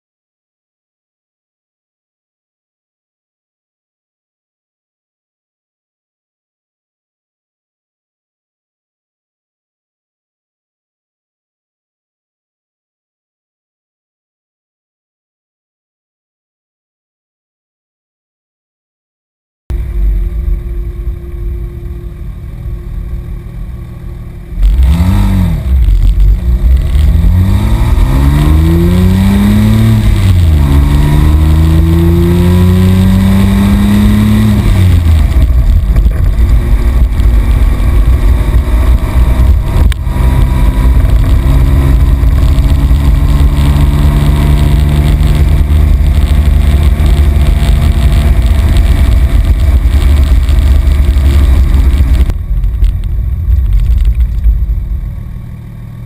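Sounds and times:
sports car engine revving: 0:19.7 - 0:52.4.

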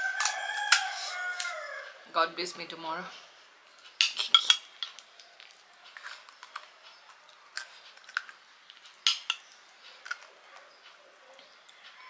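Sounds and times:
person chewing crisp food: 0:04.9 - 0:11.9.

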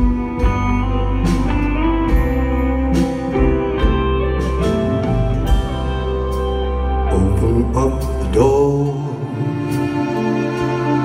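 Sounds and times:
bass and drums: 0:00.0 - 0:11.0
electric guitar notes: 0:00.0 - 0:11.0.

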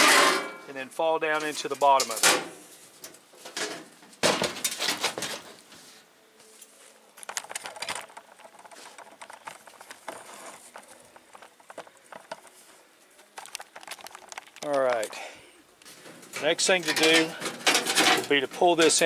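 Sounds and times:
sheet metal clattering and scraping: 0:00.0 - 0:00.6, 0:01.4 - 0:05.6, 0:15.9 - 0:19.0
sheet metal clinks and rattles: 0:16.0 - 0:19.0.

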